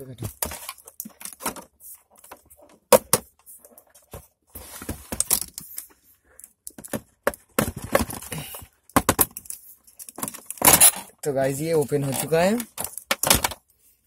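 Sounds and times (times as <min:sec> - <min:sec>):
plastic scraping: 0:10.2 - 0:13.6.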